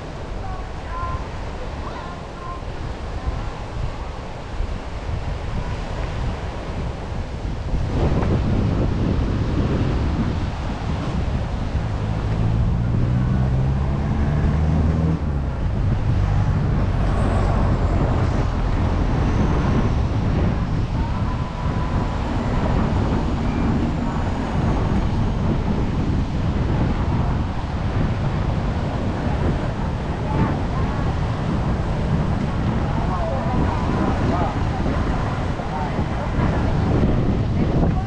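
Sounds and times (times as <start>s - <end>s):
traffic noise: 0.0s - 38.0s
wind on microphone: 0.0s - 38.0s
motor engine droning: 10.2s - 38.0s.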